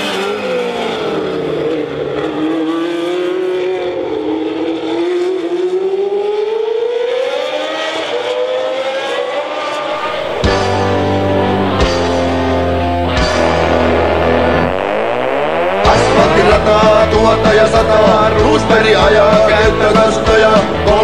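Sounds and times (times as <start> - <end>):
race car engines: 0.0 - 21.0
rock music: 9.9 - 21.0.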